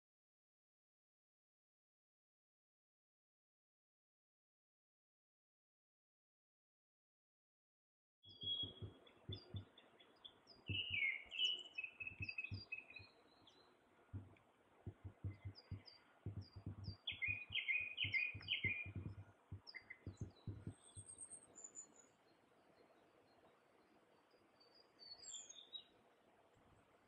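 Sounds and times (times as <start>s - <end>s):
songbirds chirping and twittering: 8.2s - 27.0s
low thumps: 8.5s - 9.7s, 12.1s - 12.7s, 14.1s - 21.1s.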